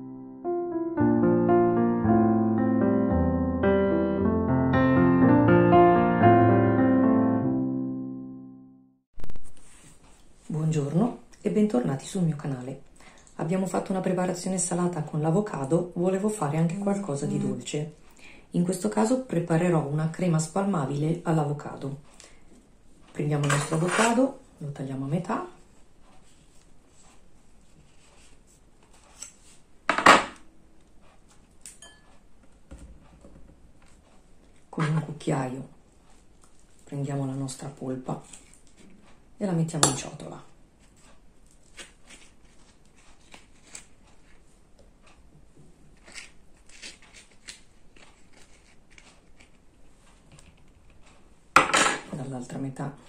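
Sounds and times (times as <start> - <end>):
metal spoon scraping glass bowl: 31.8 - 32.0
metallic clink with ring: 31.8 - 32.0.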